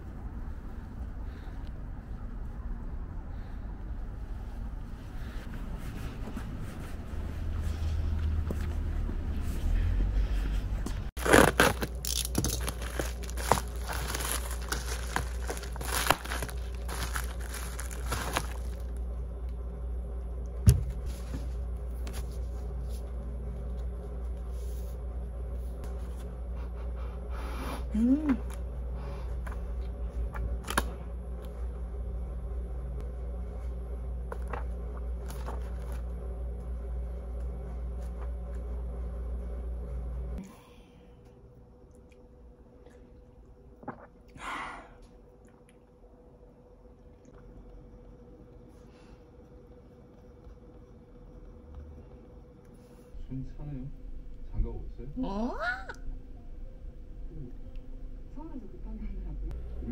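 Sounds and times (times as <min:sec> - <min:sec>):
low mechanical hum: 0:00.0 - 0:59.9
book pages rustling: 0:10.9 - 0:19.0, 0:34.3 - 0:36.2
plastic mailer crinkling: 0:11.2 - 0:19.0.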